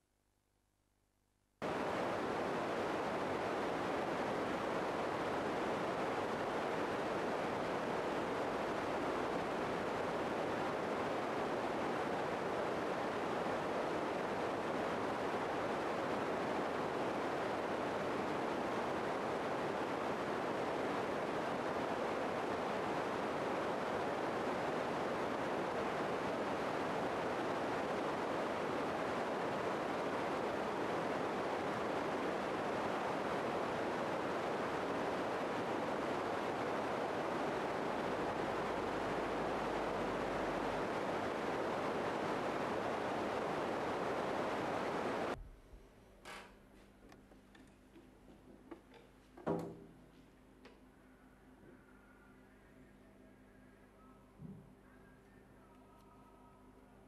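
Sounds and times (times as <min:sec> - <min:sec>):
steady hiss: 0:01.6 - 0:45.4.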